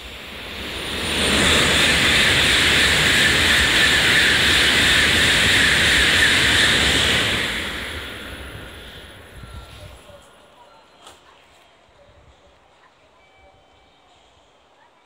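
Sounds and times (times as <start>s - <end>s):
high-speed train passing: 0.0s - 11.4s.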